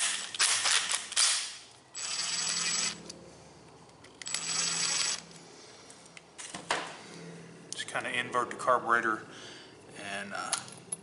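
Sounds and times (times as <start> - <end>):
cordless impact driver running: 4.3 - 5.2.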